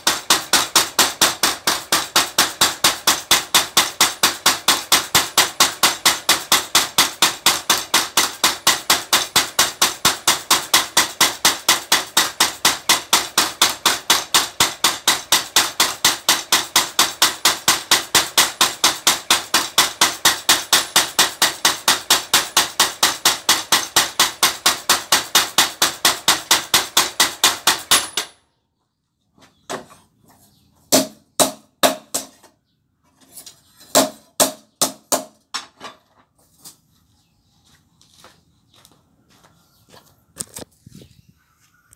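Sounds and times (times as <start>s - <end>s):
power hammer striking metal: 0.0s - 28.4s, 30.9s - 32.4s.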